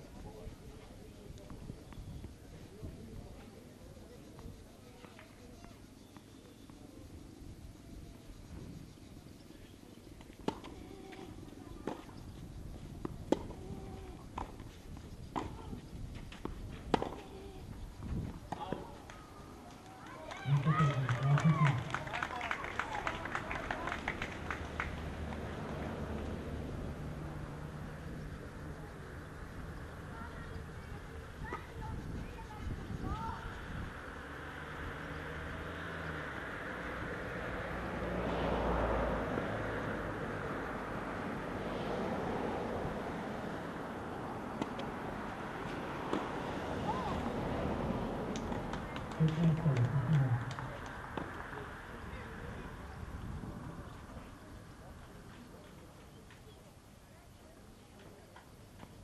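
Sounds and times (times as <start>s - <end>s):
tennis ball bounces: 10.2s - 12.2s, 12.9s - 17.4s, 44.5s - 45.0s, 45.6s - 46.4s
tennis ball off rackets: 10.2s - 17.4s, 44.5s - 46.5s
passing motor engine drone: 20.4s - 29.3s, 33.1s - 54.2s.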